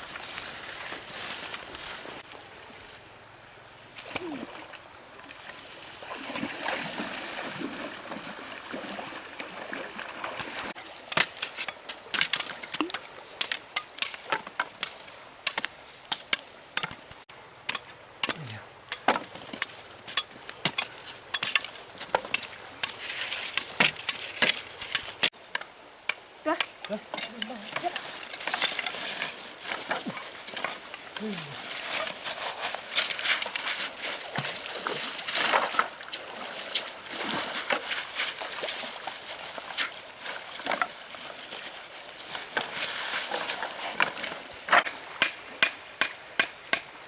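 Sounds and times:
blades chopping wooden sticks: 0:11.1 - 0:17.1, 0:17.7 - 0:34.6, 0:44.0 - 0:46.9.

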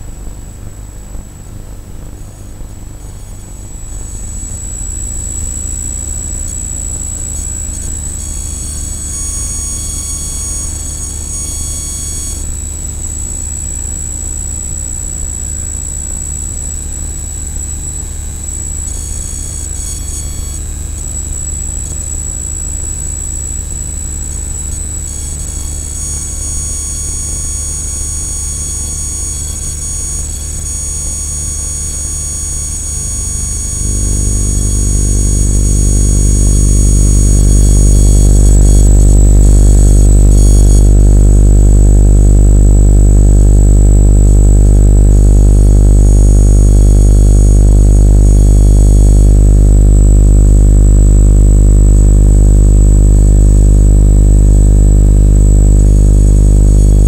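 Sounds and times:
electrical buzz: 0:25.8 - 0:57.0.

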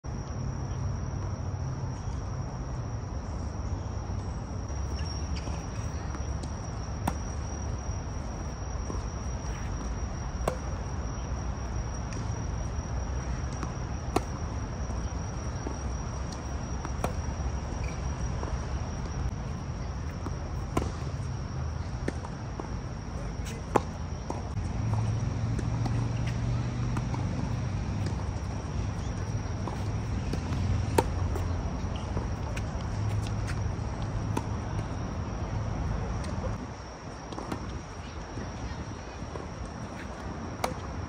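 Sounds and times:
tennis balls struck by rackets: 0:04.9 - 0:11.0, 0:12.0 - 0:17.4, 0:20.6 - 0:22.3, 0:23.2 - 0:34.6.

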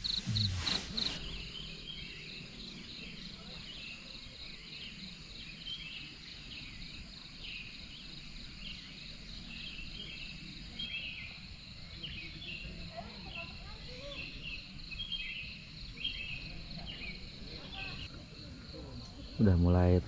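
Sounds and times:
short chirps: 0:00.0 - 0:01.2
faint low rumble: 0:00.0 - 0:01.5
crickets trilling: 0:00.0 - 0:20.0.

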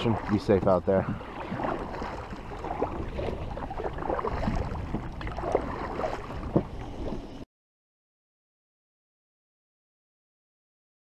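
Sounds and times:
paddle splashing in water: 0:00.0 - 0:07.4
water washing along hull: 0:00.0 - 0:07.4.

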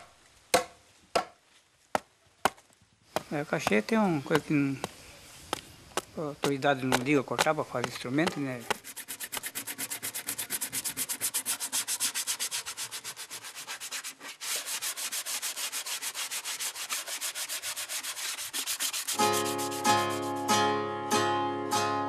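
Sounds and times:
sandpaper rubbing wood: 0:07.4 - 0:20.5
plucked string music: 0:19.2 - 0:22.0.

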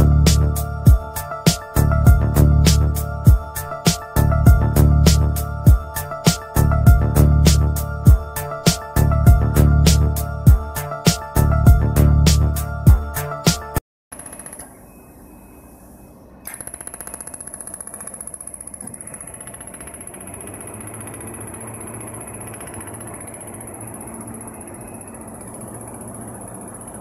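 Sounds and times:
laser welder rapid clicks: 0:16.4 - 0:27.0
high-pitched whine: 0:20.2 - 0:27.0.

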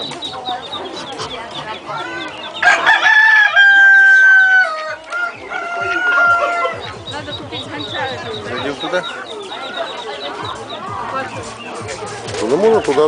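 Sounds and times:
hens clucking: 0:00.0 - 0:13.0
rooster crowing: 0:02.6 - 0:06.9.

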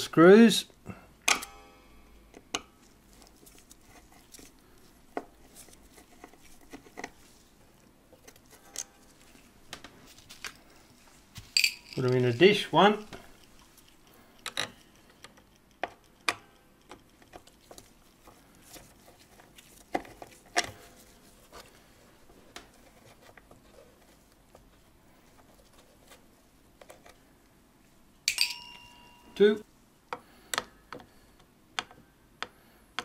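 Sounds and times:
screw clattering into metal dish: 0:28.3 - 0:29.2.

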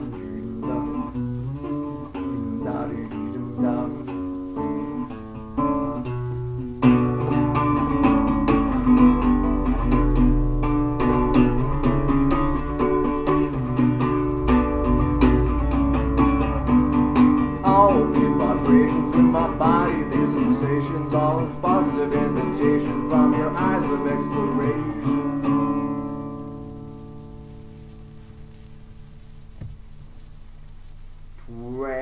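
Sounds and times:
acoustic guitar strumming: 0:00.0 - 0:31.4
man singing: 0:01.8 - 0:04.2, 0:17.6 - 0:25.2.

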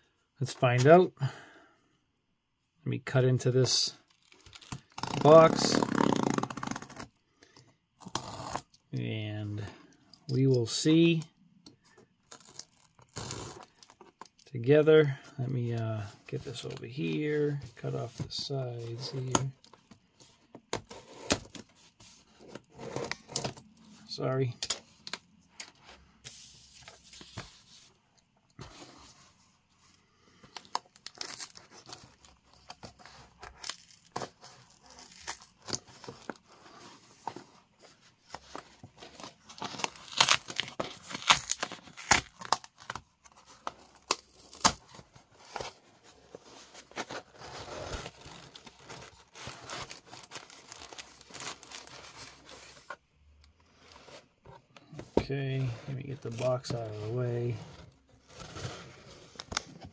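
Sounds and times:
packing tape ripping: 0:04.5 - 0:07.1, 0:12.3 - 0:13.6, 0:39.6 - 0:42.9
plastic packing crinkling: 0:46.9 - 0:52.6.

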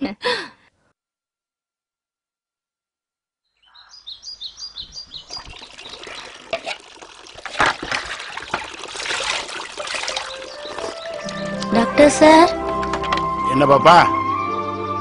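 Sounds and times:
bird chirping: 0:03.5 - 0:06.4, 0:10.2 - 0:12.1
water splashing and trickling: 0:04.6 - 0:13.3.

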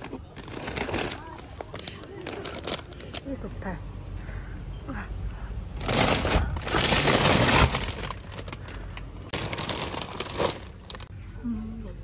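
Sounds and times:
plastic packaging crinkling: 0:00.0 - 0:03.4, 0:05.8 - 0:11.1.

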